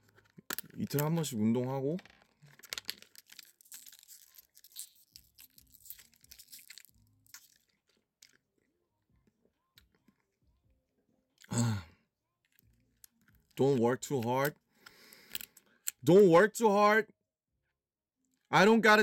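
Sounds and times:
plastic bottle crackling: 0:01.9 - 0:08.4.

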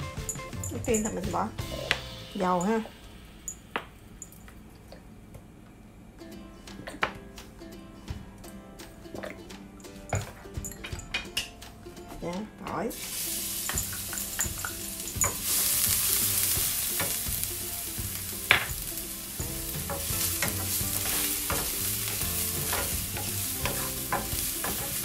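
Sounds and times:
garlic sizzling in hot oil: 0:12.9 - 0:25.0
wooden spatula knocking a pan: 0:13.6 - 0:25.0.

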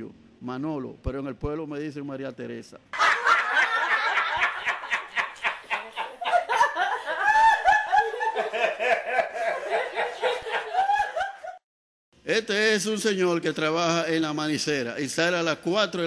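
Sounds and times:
group of people laughing: 0:03.0 - 0:11.6.

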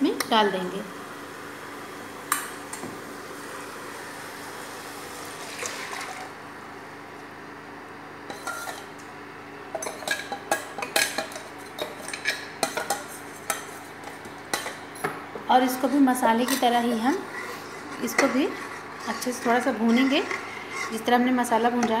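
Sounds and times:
metal spoon scraping steel bowl: 0:08.3 - 0:08.8, 0:15.7 - 0:21.1.

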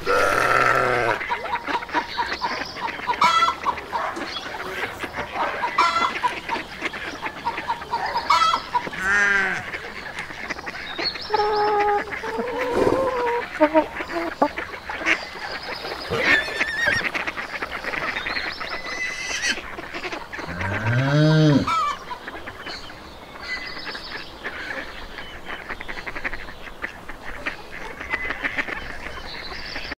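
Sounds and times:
long low animal call: 0:00.0 - 0:01.2, 0:11.3 - 0:14.4, 0:20.4 - 0:22.0
poultry calling: 0:00.0 - 0:30.0
small birds chirping: 0:00.0 - 0:30.0.

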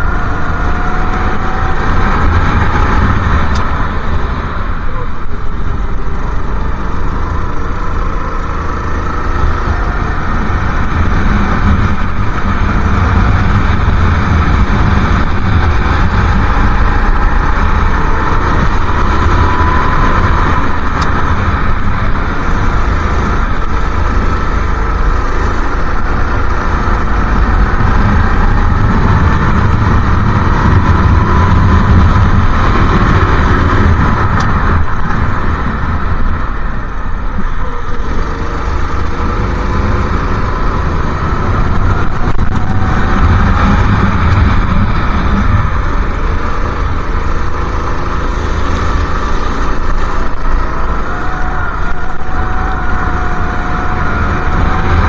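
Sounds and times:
go-kart engine racing: 0:00.0 - 0:55.0.

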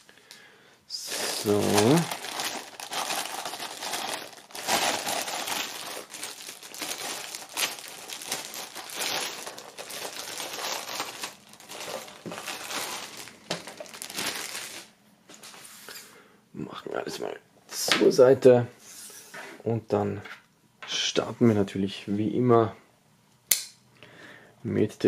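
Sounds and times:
plastic bag crinkling: 0:00.9 - 0:15.0.

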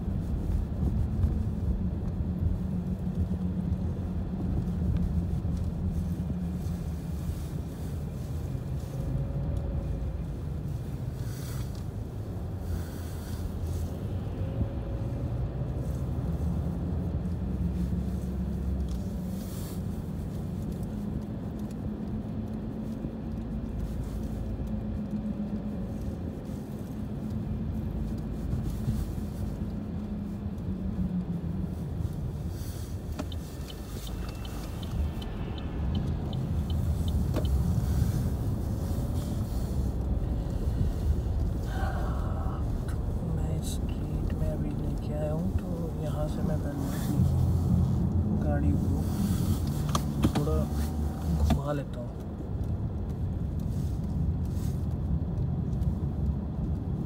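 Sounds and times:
engine and tyre rumble: 0:00.0 - 0:57.0
light even ticking: 0:32.9 - 0:38.7.

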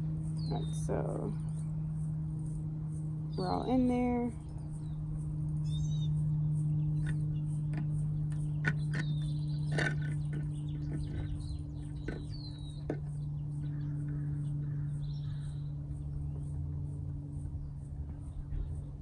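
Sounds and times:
steady low hum: 0:00.0 - 0:19.0
bird chirps: 0:04.4 - 0:16.6.

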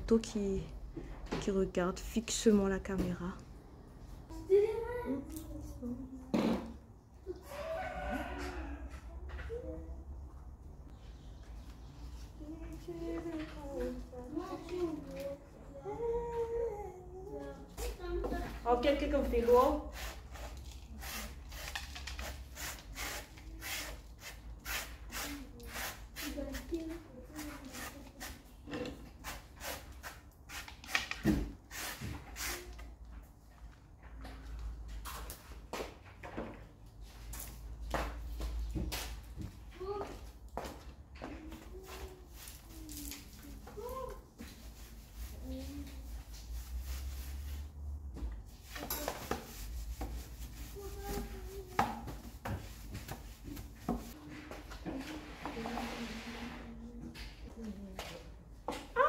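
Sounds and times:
sponge wiping wooden shelf: 0:43.5 - 0:54.2, 0:55.1 - 0:56.8.

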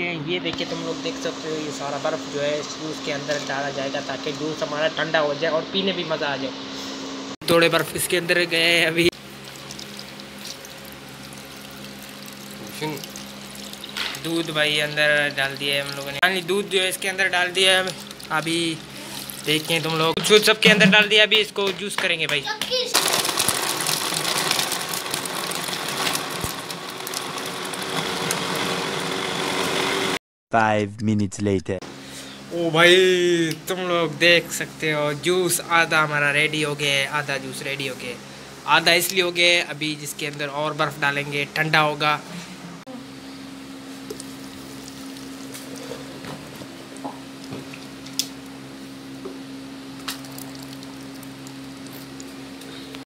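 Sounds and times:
blender motor whirring: 0:09.2 - 0:20.1, 0:22.8 - 0:30.2
liquid pouring and splashing: 0:09.2 - 0:20.2, 0:23.0 - 0:28.8, 0:44.2 - 0:46.2, 0:50.0 - 0:52.4.

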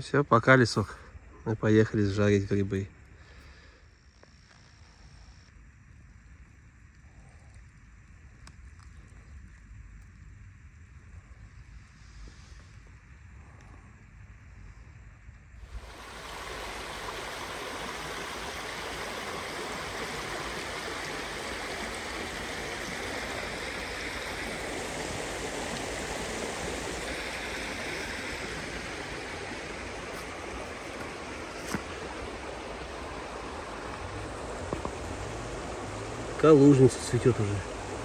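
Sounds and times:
stream water rushing: 0:15.6 - 0:38.0.

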